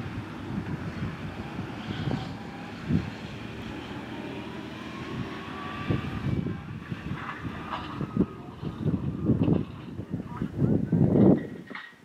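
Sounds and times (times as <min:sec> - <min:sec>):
tractor engine running under load: 0:00.0 - 0:11.7
low thumps from baler machinery: 0:05.9 - 0:12.0.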